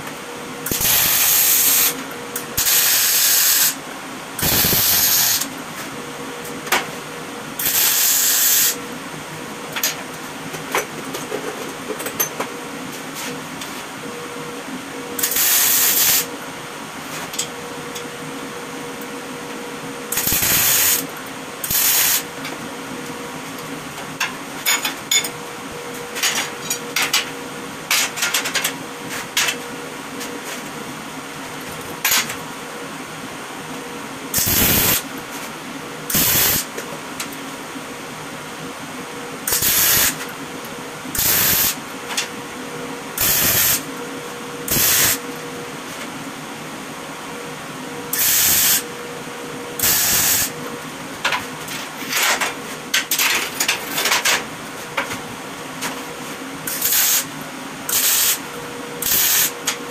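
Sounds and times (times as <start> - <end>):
steady machine hum: 0.0 - 59.9
welding arc crackling: 0.7 - 2.0, 2.6 - 3.8, 4.4 - 5.5, 7.6 - 8.8, 20.2 - 21.0, 21.6 - 22.2, 34.4 - 35.0, 36.1 - 36.7, 39.5 - 40.2, 41.2 - 41.8, 43.2 - 43.8, 44.7 - 45.2, 49.8 - 50.5, 57.9 - 58.4.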